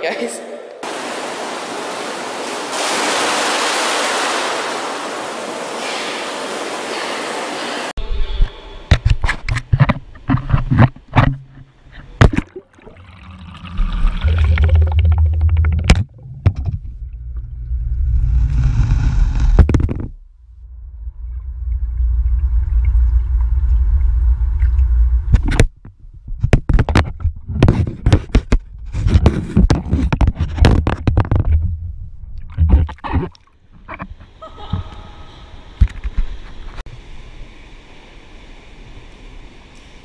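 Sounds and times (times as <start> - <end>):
underwater splashing and bubbling: 12.2 - 19.6
muffled underwater rumble: 20.6 - 25.6
faint steady hum: 33.6 - 40.0.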